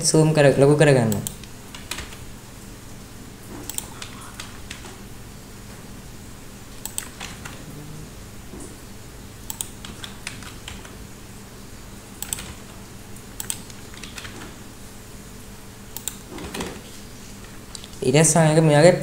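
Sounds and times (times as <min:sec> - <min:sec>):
low steady hum: 0:00.0 - 0:19.0
keyboard keys clicking: 0:01.1 - 0:02.2, 0:03.6 - 0:05.0, 0:06.8 - 0:07.7, 0:09.5 - 0:11.0, 0:12.2 - 0:12.8, 0:13.4 - 0:14.6, 0:15.9 - 0:16.8.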